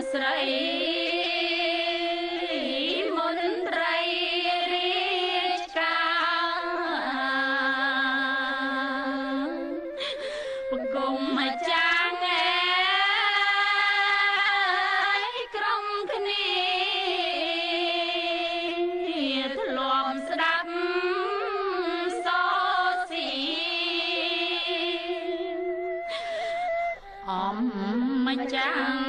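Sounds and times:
person singing long wavering notes: 0:00.0 - 0:29.0.

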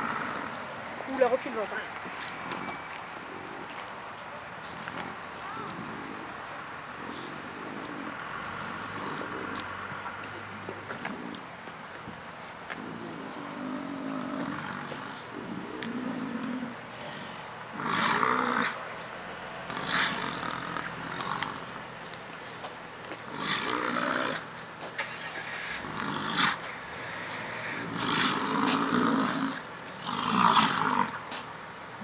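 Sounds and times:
bison bellowing: 0:04.6 - 0:11.6, 0:12.7 - 0:21.7, 0:23.2 - 0:31.4.

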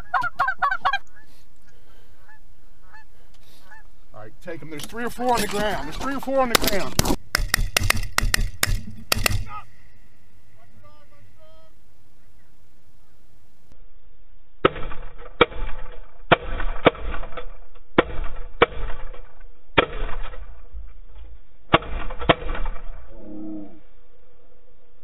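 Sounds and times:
shotgun shots: 0:05.4 - 0:09.9, 0:14.6 - 0:20.6, 0:21.7 - 0:23.0.

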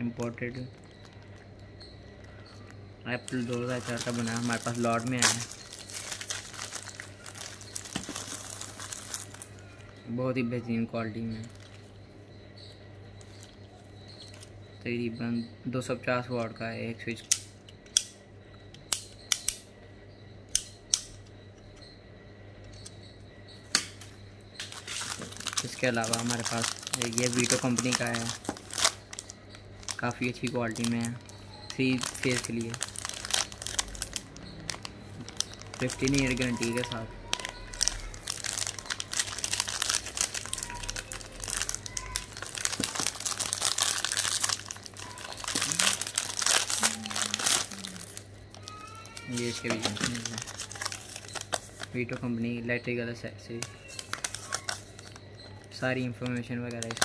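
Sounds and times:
plastic bag crinkling: 0:00.2 - 0:01.5, 0:03.1 - 0:09.9, 0:11.4 - 0:11.8, 0:24.6 - 0:52.3, 0:53.6 - 0:57.0.

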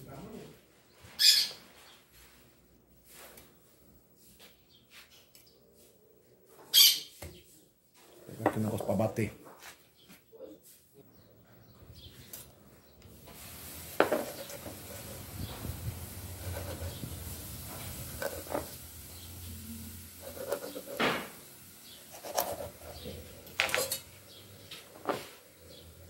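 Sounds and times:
background hiss: 0:12.8 - 0:26.0
metal pipe on wooden board: 0:14.0 - 0:14.7, 0:17.7 - 0:18.8, 0:23.4 - 0:24.1.

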